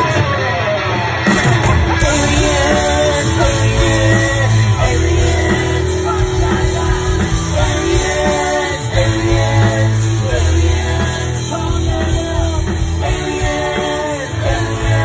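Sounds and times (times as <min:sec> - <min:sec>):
bass guitar: 0:00.0 - 0:15.0
drums: 0:00.0 - 0:15.0
electric guitars: 0:00.0 - 0:15.0
person singing: 0:01.9 - 0:15.0.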